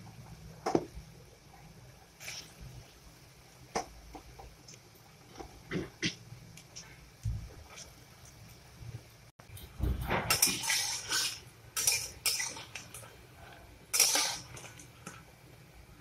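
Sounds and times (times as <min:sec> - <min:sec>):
frying in hot oil: 0:00.0 - 0:16.0
metal spatula scraping a pan: 0:10.2 - 0:13.0, 0:13.9 - 0:14.8.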